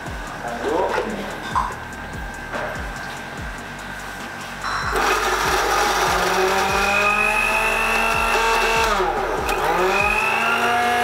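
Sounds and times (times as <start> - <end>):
background music with beat: 0.0 - 11.0
blender running: 4.9 - 11.0.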